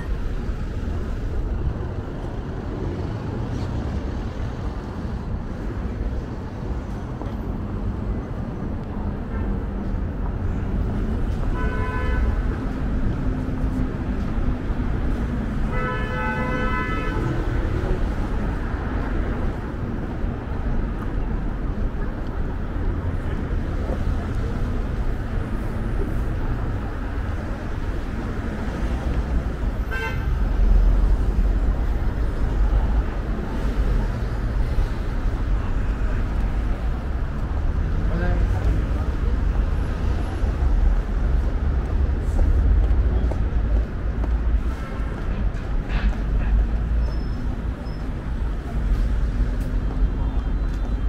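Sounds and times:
rumble of passing cars: 0.0 - 51.0
car horn honking: 11.5 - 12.3, 29.9 - 30.4.

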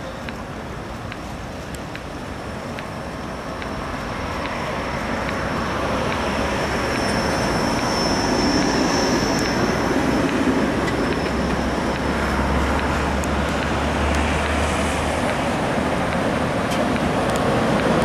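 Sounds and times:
deep tram hum: 0.0 - 18.0
road traffic: 0.0 - 18.0
trams rumbling on track: 0.0 - 18.0
thin high whine: 6.1 - 13.2.

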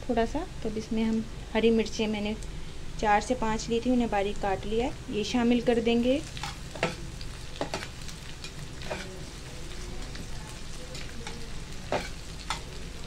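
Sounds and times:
onions sizzling in hot oil: 0.0 - 13.0
spatula scraping a steel pan: 8.9 - 9.1.

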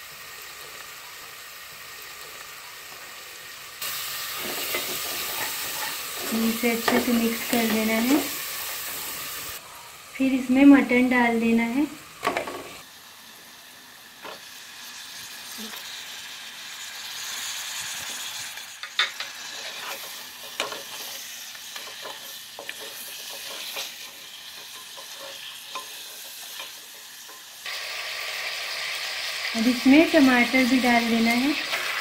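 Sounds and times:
meat sizzling in hot oil: 0.0 - 32.0
wooden spatula scraping a pot: 4.3 - 7.9, 19.4 - 27.4.

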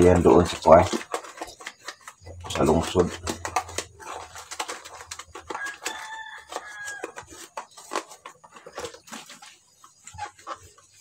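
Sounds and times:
rooster crowing: 5.5 - 7.3.

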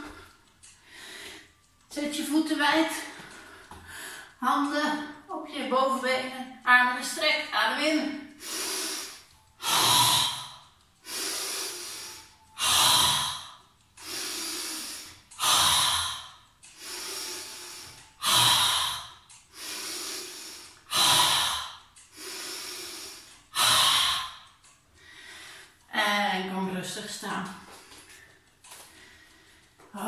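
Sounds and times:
woman breathing deeply: 8.4 - 25.9.

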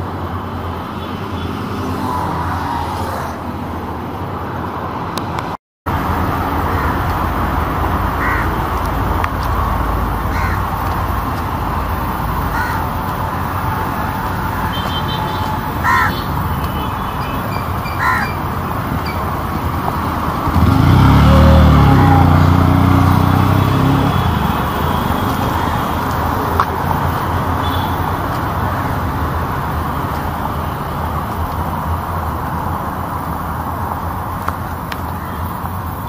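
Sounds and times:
road traffic noise: 0.0 - 36.0
vehicle engine passing close: 18.5 - 31.3.

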